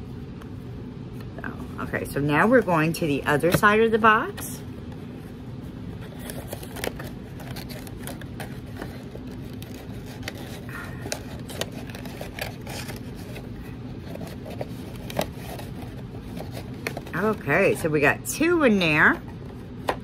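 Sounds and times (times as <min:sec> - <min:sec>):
low background hum: 0:00.0 - 0:20.0
clicks and rustles of handling: 0:06.0 - 0:17.9.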